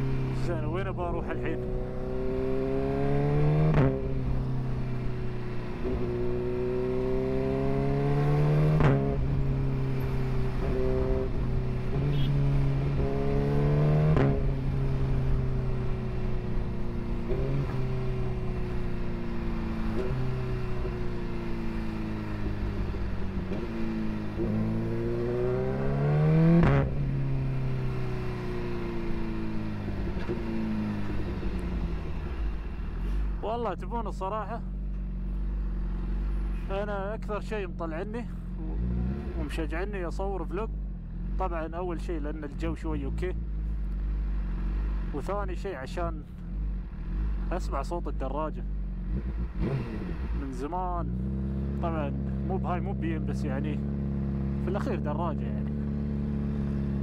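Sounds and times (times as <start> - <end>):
motorcycle engine revving: 0.0 - 33.2, 38.4 - 39.7, 48.6 - 57.0.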